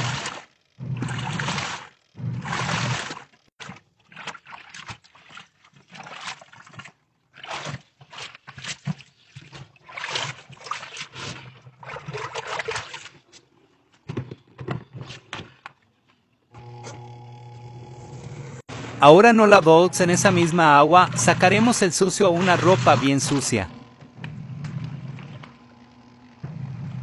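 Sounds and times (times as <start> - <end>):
washing machine motor hum: 0.0 - 3.4, 16.5 - 27.0
water splashing and gurgling: 0.0 - 13.3, 18.7 - 27.0.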